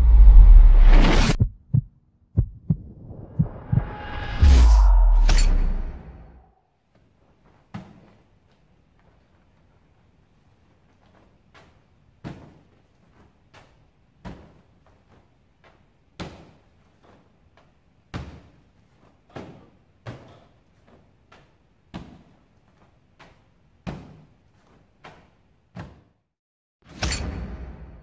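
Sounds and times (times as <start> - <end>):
short loud burst of sound: 3.5 - 6.5.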